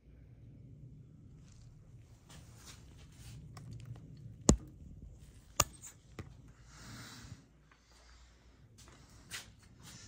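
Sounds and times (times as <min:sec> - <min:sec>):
soft rustle: 0:01.4 - 0:03.6.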